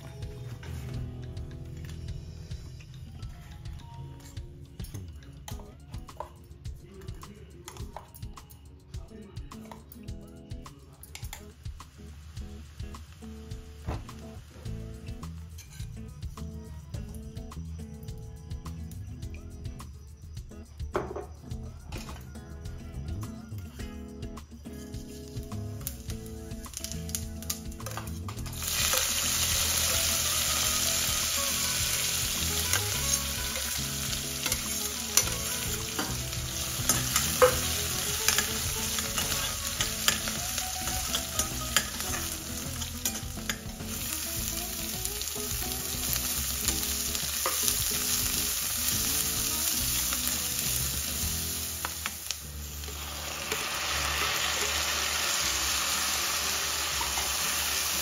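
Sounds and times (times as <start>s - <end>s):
chillies sizzling in hot oil: 11.1s - 16.1s, 24.6s - 58.0s.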